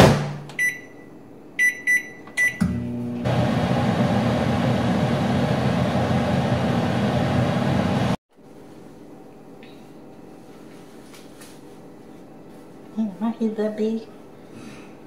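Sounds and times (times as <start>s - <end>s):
microwave keypad beeps: 0.6s - 2.7s
microwave oven humming: 1.6s - 8.2s.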